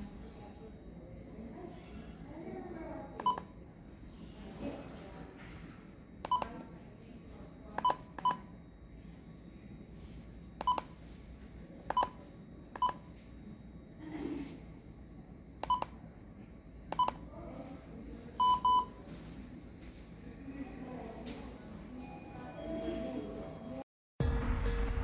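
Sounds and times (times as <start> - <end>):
electronic keypad beeps: 3.2 - 3.6, 6.3 - 6.5, 7.8 - 8.5, 10.6 - 11.0, 11.9 - 12.2, 12.8 - 13.1, 15.6 - 16.0, 16.9 - 17.2, 18.4 - 19.0.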